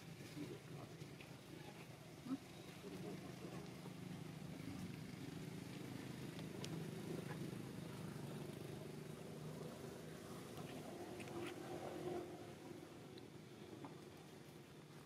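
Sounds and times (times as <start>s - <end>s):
faint engine hum: 0.0s - 15.0s.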